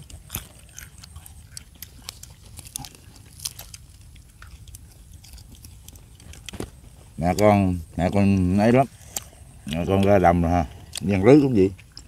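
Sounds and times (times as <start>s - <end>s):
small clicks and crunches: 0.0s - 7.5s
faint chewing: 0.0s - 12.0s.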